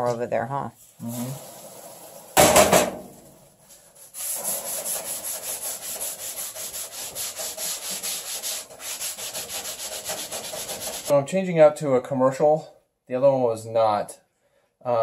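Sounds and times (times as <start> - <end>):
scouring pad scrubbing steel: 3.9 - 11.1.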